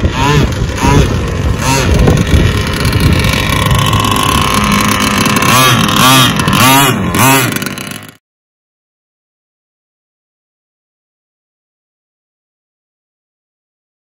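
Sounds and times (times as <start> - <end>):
model boat engine whining and revving: 0.0 - 8.2.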